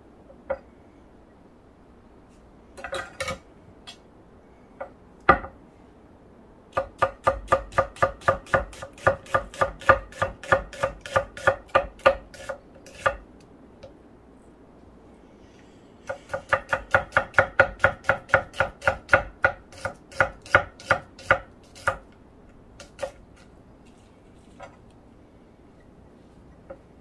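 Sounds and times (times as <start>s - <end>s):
knife slicing onion on wooden board: 6.7s - 13.2s, 16.0s - 22.1s, 22.8s - 23.5s.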